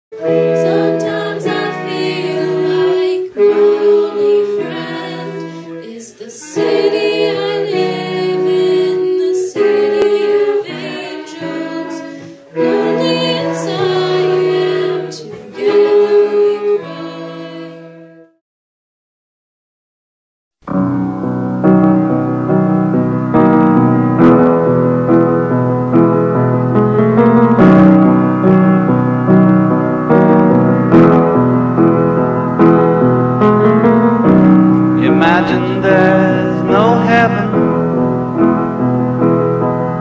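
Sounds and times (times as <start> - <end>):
a cappella singing: 0.2 - 18.0, 35.0 - 37.6.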